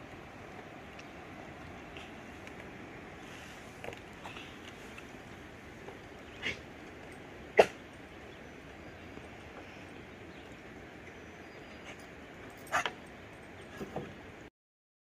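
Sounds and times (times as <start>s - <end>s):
steady outdoor hiss: 0.0s - 14.5s
dog barking: 7.6s - 7.8s.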